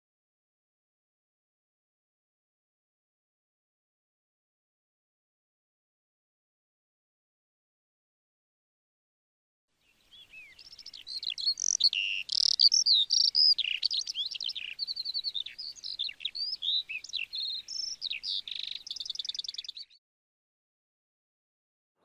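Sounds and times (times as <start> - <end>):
songbird singing: 9.8 - 20.0.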